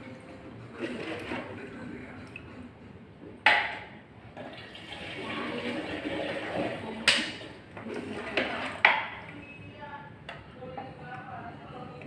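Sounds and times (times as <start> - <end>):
liquid pouring through a funnel: 0.1 - 2.4, 4.4 - 7.1.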